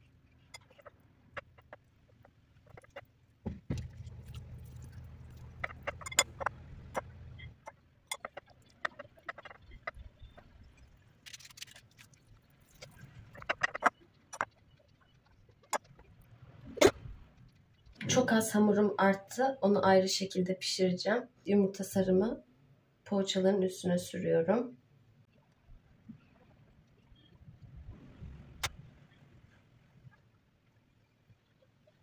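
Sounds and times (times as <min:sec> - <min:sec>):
low hum: 0:00.0 - 0:11.2.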